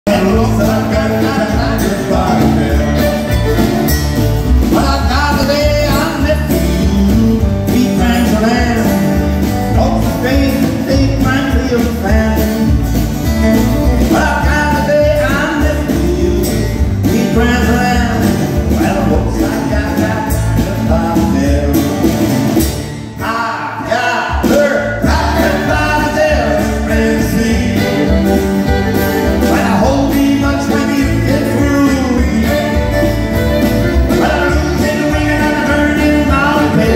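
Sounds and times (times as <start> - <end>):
man singing: 0.0 - 3.7, 4.5 - 22.2, 23.0 - 36.9
strummed acoustic guitars: 0.0 - 36.9
fiddle: 0.1 - 6.5, 25.2 - 36.9.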